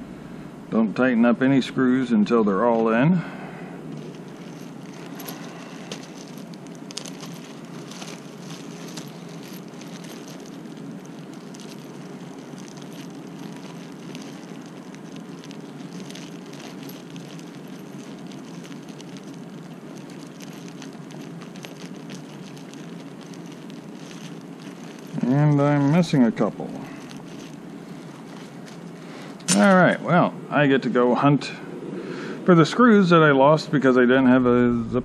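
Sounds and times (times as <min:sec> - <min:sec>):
low background noise: 0:00.0 - 0:35.0
plastic bag crinkling: 0:03.8 - 0:29.8.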